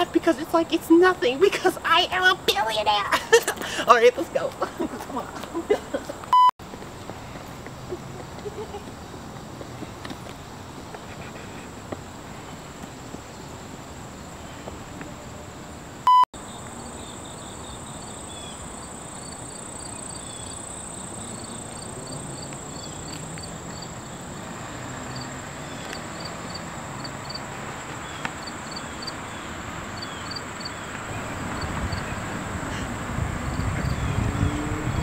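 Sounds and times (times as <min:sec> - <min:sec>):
insects droning: 0:07.2 - 0:35.0
insects chirping: 0:15.6 - 0:34.6.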